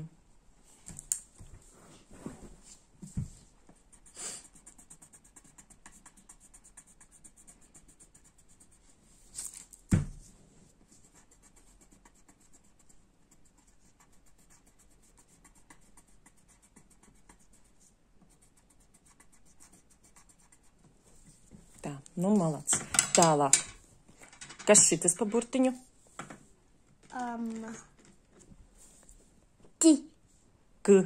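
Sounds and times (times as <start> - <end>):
pencil scratching on paper: 3.8 - 9.0, 10.8 - 22.5.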